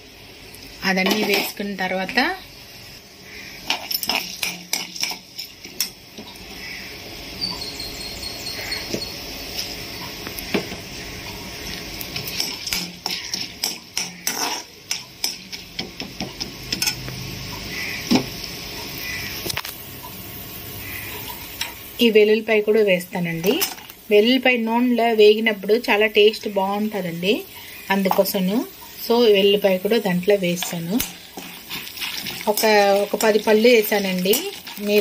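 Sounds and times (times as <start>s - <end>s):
food sizzling in hot oil: 0.0s - 35.0s
ladle clinking and scraping pan: 3.6s - 6.4s, 12.2s - 15.6s.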